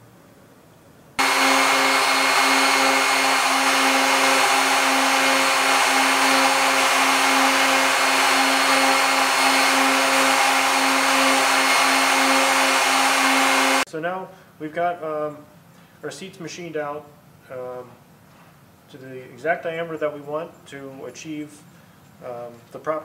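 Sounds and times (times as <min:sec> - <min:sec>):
belt sander grinding metal: 0:01.2 - 0:13.8.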